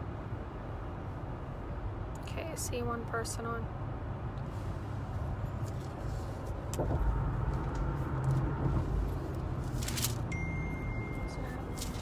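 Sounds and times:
car cabin rumble: 5.8 - 12.0
handling rustle: 9.1 - 10.4, 11.2 - 12.0
thin high tone: 10.2 - 12.0.

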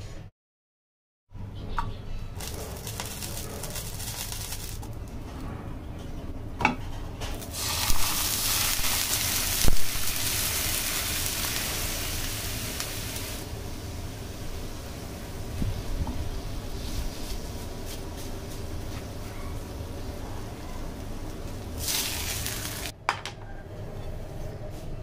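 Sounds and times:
milk hissing in hot pan: 2.4 - 4.8, 7.5 - 18.0, 21.8 - 22.9
bread sizzling in a pan: 2.4 - 4.9, 7.4 - 22.9.

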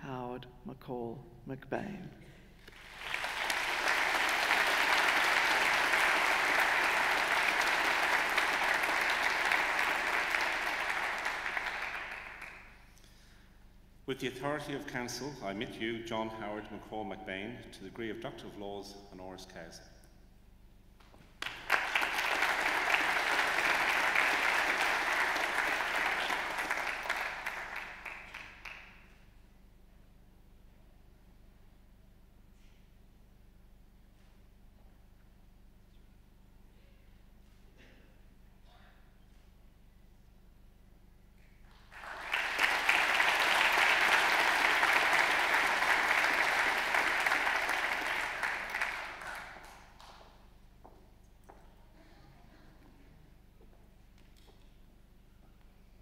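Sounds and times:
audience applauding: 2.6 - 12.9, 21.4 - 29.1, 41.6 - 50.3.

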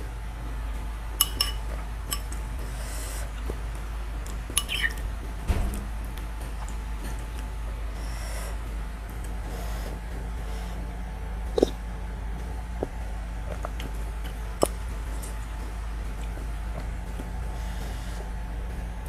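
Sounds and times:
steady low hum: 0.0 - 19.0
spoon clinking on ceramic bowl: 1.2 - 2.3, 4.6 - 5.0
soft slurping: 9.3 - 12.0, 12.7 - 16.6.

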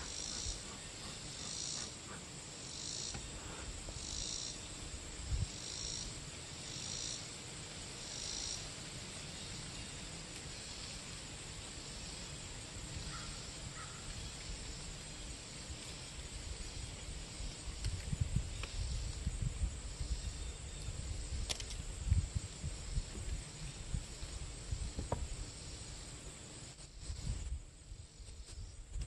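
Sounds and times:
insect high-pitched pulses: 0.0 - 28.9
steady high insect drone: 0.0 - 29.0
wind rumble on microphone: 4.8 - 5.6, 12.5 - 26.2, 27.0 - 29.0.

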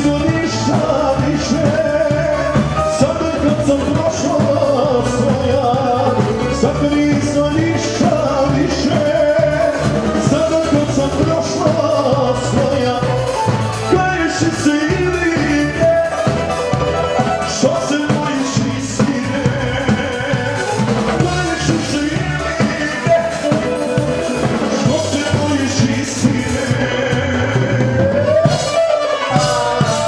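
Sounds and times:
drum kit steady beat: 0.0 - 30.0
keyboards: 0.0 - 30.0.

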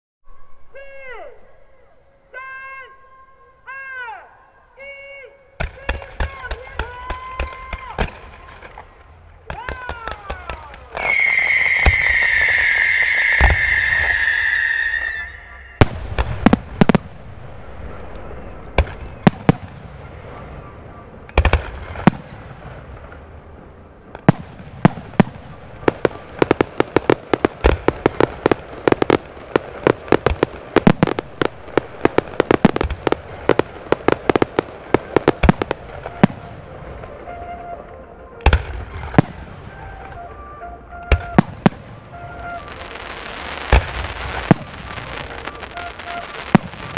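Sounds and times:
firework bangs: 5.6 - 46.9
firework whistle: 10.9 - 17.2, 24.2 - 46.9.

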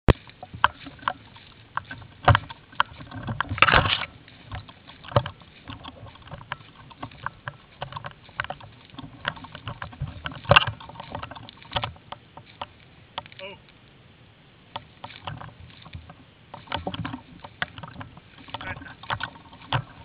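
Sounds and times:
brush rustling: 0.0 - 20.0
footsteps crunching dry leaves: 0.1 - 13.8, 14.6 - 20.0
twigs snapping: 0.1 - 13.8.

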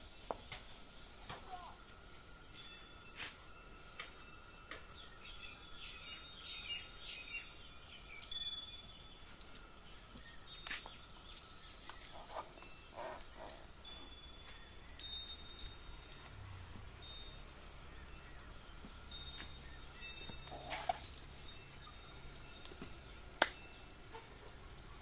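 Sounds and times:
bell-like rings: 2.1 - 11.1, 12.5 - 24.1
horse harness clinking: 4.8 - 24.4.

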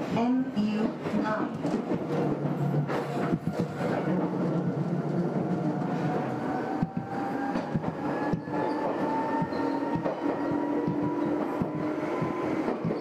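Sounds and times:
wheels rumbling on rail: 0.0 - 13.0
track knocks: 6.7 - 13.0.

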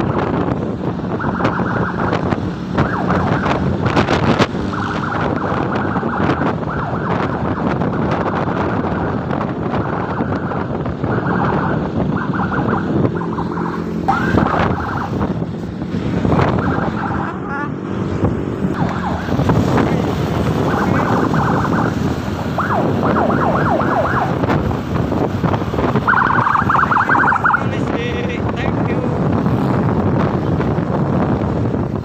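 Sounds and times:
wind buffeting microphone: 0.0 - 32.0
rising whine: 10.0 - 24.9.

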